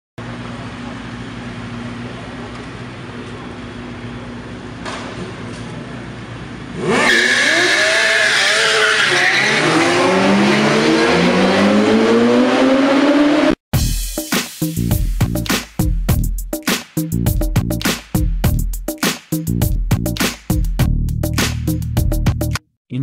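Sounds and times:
motorcycle engines idling: 0:00.2 - 0:06.7
motorcycles revving and accelerating: 0:06.0 - 0:13.6.

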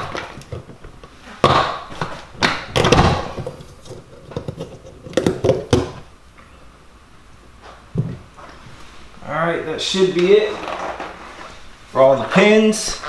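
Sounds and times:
plastic fasteners popping: 0:00.0 - 0:06.0.

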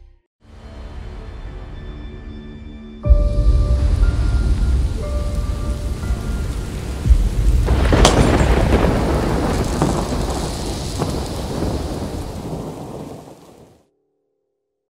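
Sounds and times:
low thunder rumble: 0:03.3 - 0:13.7
rain hiss: 0:03.7 - 0:13.8
sharp thunderclap: 0:05.7 - 0:13.8.

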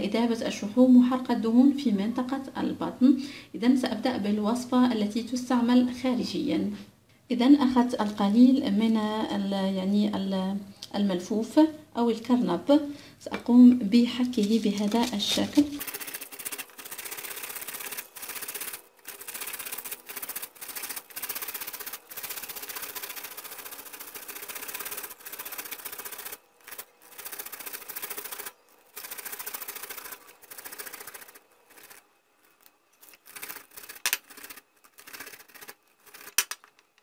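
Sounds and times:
cabbage grated on metal grater: 0:14.4 - 0:32.0, 0:33.0 - 0:36.4.

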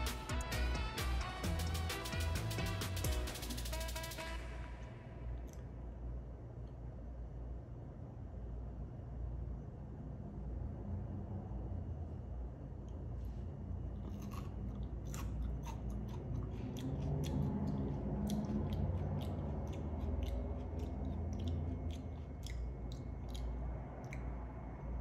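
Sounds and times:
person chewing crunchy pepper: 0:13.8 - 0:24.6.

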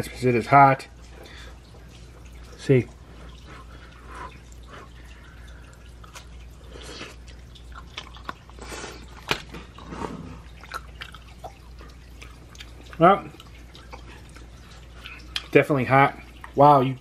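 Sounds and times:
low steady hum: 0:00.0 - 0:17.0
wet mouth sounds: 0:05.8 - 0:15.6.

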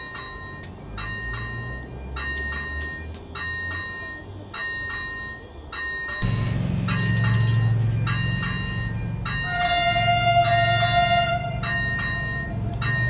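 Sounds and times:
level crossing warning bell: 0:00.0 - 0:13.0
long steady tone: 0:00.0 - 0:13.0
steady low hum: 0:06.2 - 0:10.5.

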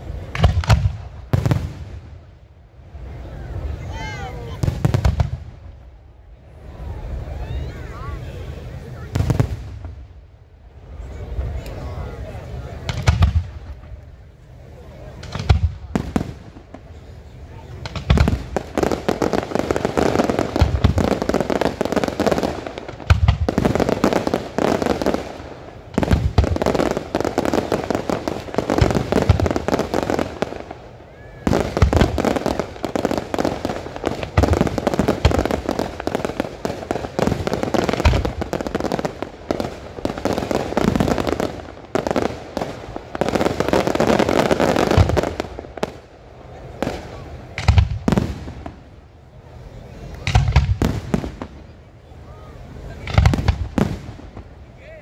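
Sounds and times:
fireworks bangs and crackle: 0:00.0 - 0:55.0
heavy firework booms: 0:00.1 - 0:02.3, 0:04.4 - 0:05.9, 0:09.0 - 0:10.1, 0:12.7 - 0:13.9, 0:15.0 - 0:17.0, 0:17.6 - 0:48.9, 0:50.2 - 0:51.7, 0:53.0 - 0:54.6.

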